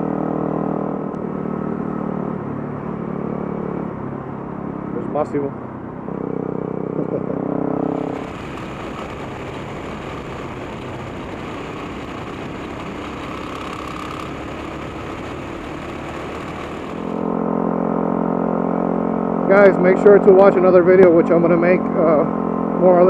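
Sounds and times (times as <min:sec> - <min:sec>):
motorcycle engine hum: 0:00.0 - 0:23.0
wind rushing over microphone: 0:07.8 - 0:17.3.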